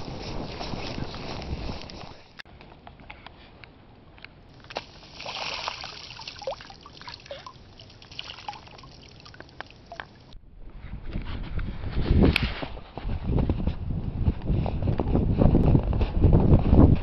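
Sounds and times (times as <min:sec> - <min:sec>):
small bubbling pops: 0:04.6 - 0:10.4
water trickling and gurgling: 0:04.6 - 0:10.4.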